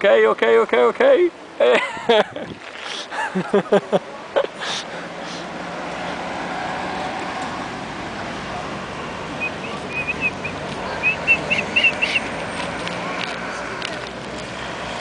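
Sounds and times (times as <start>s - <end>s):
town street background noise: 0.0s - 15.0s
quick high chirps: 9.4s - 12.3s.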